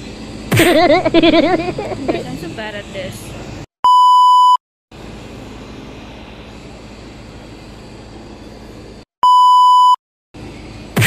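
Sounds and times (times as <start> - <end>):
test-tone beep: 3.8 - 4.6, 9.2 - 10.0.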